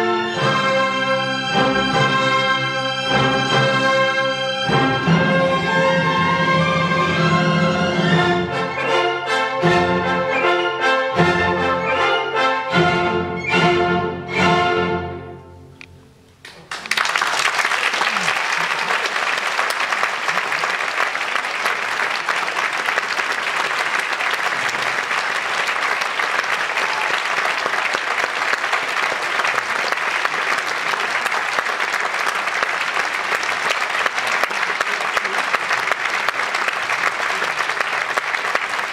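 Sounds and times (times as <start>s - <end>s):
audience applauding: 16.4s - 38.9s.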